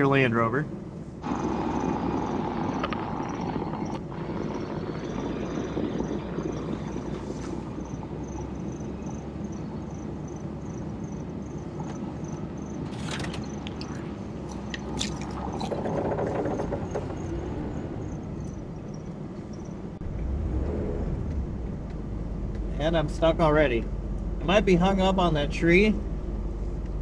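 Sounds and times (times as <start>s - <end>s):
engine running at low revs: 0.0s - 27.0s
branches snapping against vehicle: 12.9s - 15.8s.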